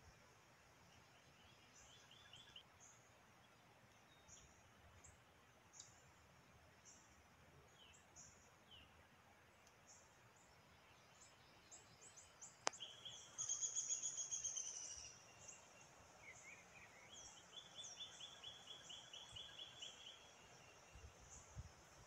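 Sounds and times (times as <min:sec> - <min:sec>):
birds chirping: 0:09.7 - 0:21.5.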